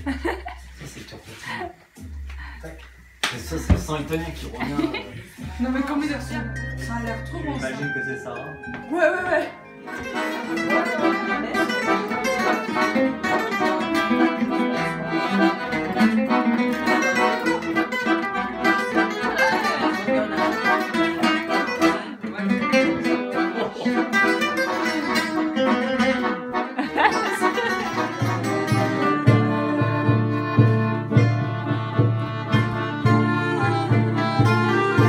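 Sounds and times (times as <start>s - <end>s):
deep pulsing beat: 0.0s - 7.6s, 28.1s - 35.0s
accordion chords: 0.0s - 35.0s
acoustic guitar strumming: 1.9s - 35.0s.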